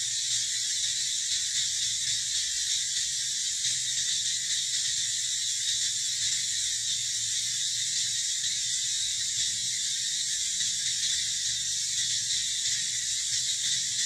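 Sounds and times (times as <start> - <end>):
insect chorus buzzing: 0.0 - 14.0.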